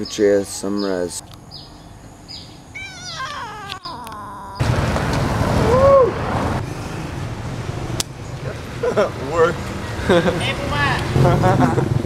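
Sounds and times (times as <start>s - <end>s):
street and traffic noise: 0.0s - 12.0s
cat meowing: 2.8s - 4.6s.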